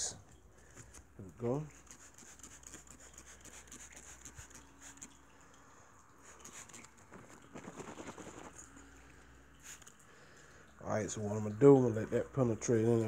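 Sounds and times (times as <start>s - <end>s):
cloth rubbing on car paint: 1.3s - 5.1s, 6.2s - 8.7s.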